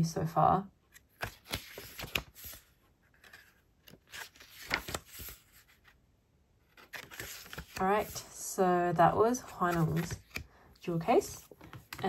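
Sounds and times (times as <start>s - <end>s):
book pages turning: 0.9s - 6.0s, 6.6s - 8.4s, 9.3s - 10.5s.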